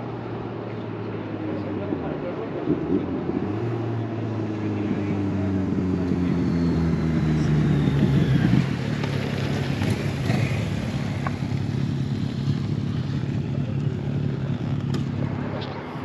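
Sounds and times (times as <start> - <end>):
motorcycle engine running: 4.3 - 16.0.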